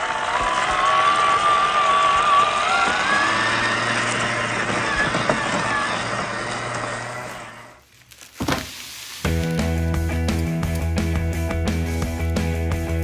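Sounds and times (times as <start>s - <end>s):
electric motor whining: 0.7s - 7.8s.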